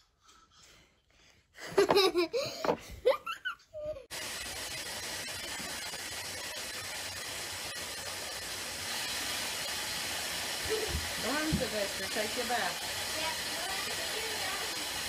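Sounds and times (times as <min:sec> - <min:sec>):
child's voice and laughter: 0:01.7 - 0:04.1
water running into bathtub: 0:04.1 - 0:15.0.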